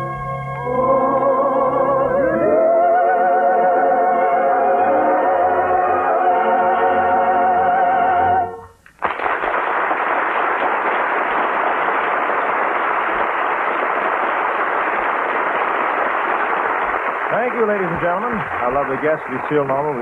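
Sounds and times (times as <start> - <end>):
choir and orchestra chord: 0.6 - 8.5
audience applauding: 8.9 - 20.0.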